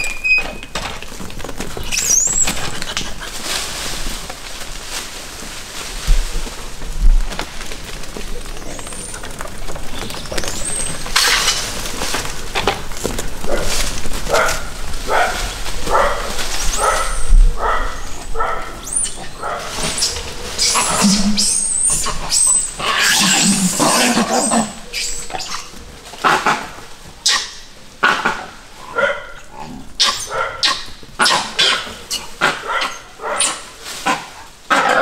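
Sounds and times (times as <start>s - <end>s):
dogs barking: 13.4s - 21.3s, 27.2s - 35.0s.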